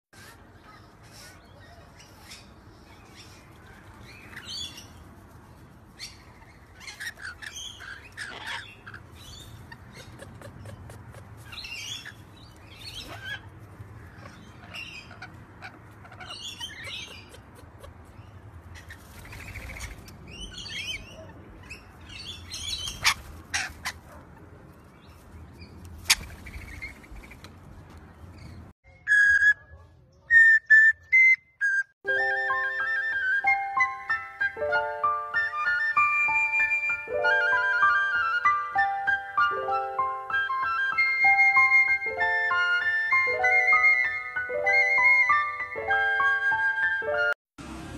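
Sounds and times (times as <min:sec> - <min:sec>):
parrots chattering: 0:06.0 - 0:24.4.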